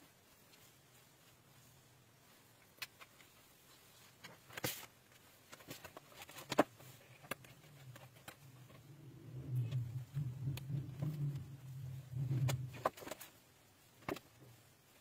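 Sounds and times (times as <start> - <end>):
pages rustling: 2.8 - 8.9, 12.1 - 13.4
low hum: 7.2 - 13.2.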